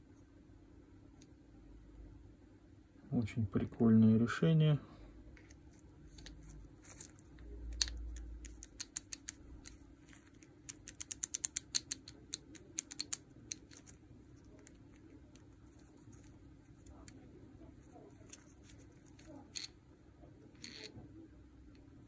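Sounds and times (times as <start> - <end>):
clicks and taps of small parts: 5.4 - 17.2.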